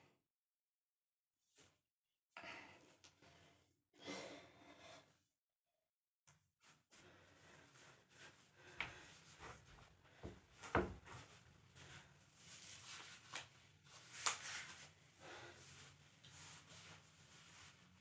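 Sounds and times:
faint rustling of clothing: 6.6s - 18.0s.

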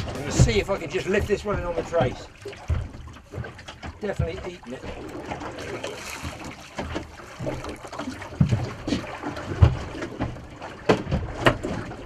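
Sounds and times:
dull knocks and thumps: 0.0s - 12.0s
water slapping boat hull: 0.0s - 12.0s
eel splashing at surface: 2.2s - 11.8s.

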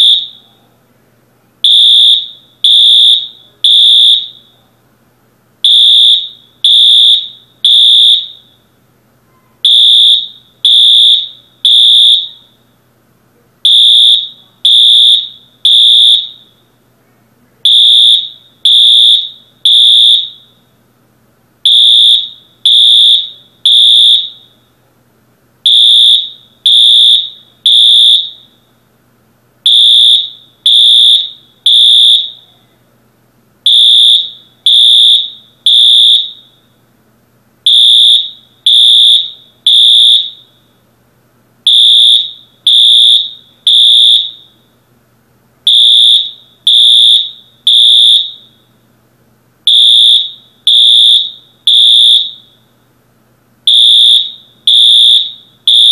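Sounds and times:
fire alarm beeps: 0.0s - 0.5s, 1.6s - 4.6s, 5.6s - 8.7s, 9.6s - 12.7s, 13.6s - 16.7s, 17.6s - 20.7s, 21.6s - 24.6s, 25.6s - 28.7s, 29.6s - 32.6s, 33.6s - 36.7s, 37.6s - 40.7s, 41.7s - 44.7s, 45.7s - 48.7s, 49.7s - 52.7s, 53.7s - 55.9s.

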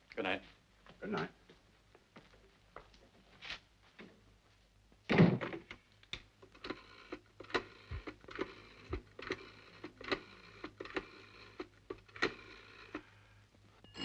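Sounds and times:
telephone dial clicks: 6.5s - 13.0s.

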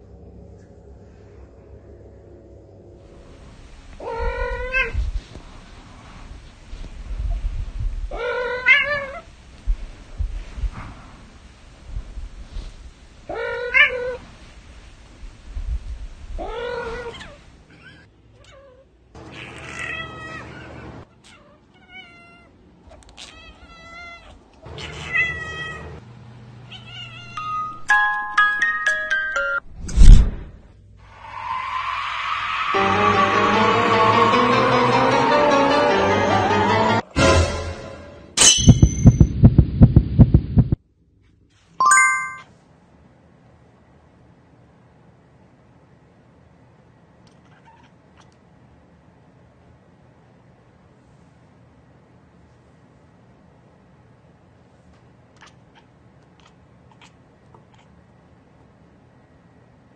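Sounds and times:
cats meowing: 4.0s - 5.0s, 16.4s - 26.0s, 26.7s - 27.5s
faint hiss: 9.1s - 17.6s
ringing ding: 38.4s - 39.3s, 41.8s - 42.4s
high ping: 38.4s - 39.4s, 41.8s - 42.5s
rapid low thumps: 38.8s - 40.8s.

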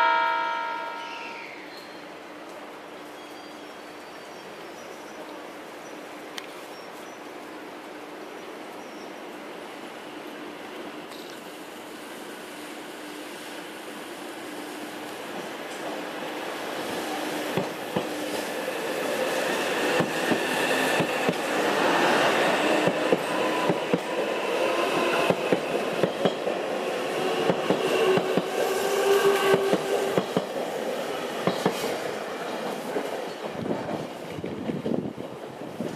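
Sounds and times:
train rushing rumble: 15.2s - 35.9s
train wheels clicking over joints: 17.5s - 32.0s.

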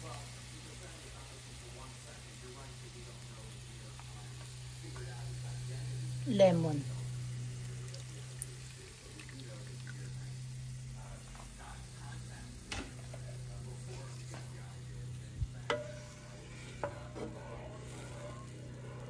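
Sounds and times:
sauce sizzling in a frying pan: 0.0s - 19.0s
low hum: 10.3s - 19.0s
spatula knocking against pan: 15.6s - 18.3s.

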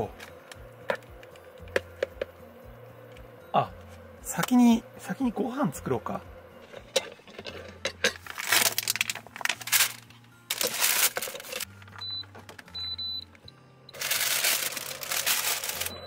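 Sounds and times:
background music with bass: 0.0s - 16.0s
metal pan set on cooktop: 6.6s - 11.9s
parchment paper crinkling: 8.2s - 12.0s, 14.0s - 15.9s.

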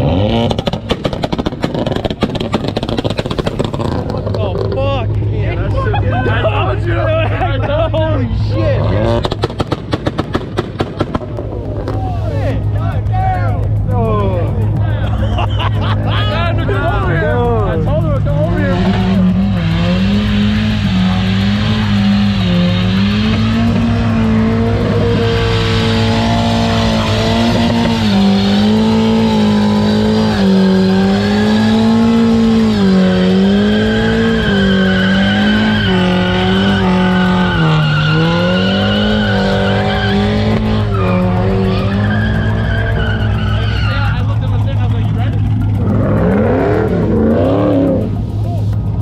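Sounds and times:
car engine revving high: 0.0s - 49.0s
tyres squealing: 18.0s - 48.9s.

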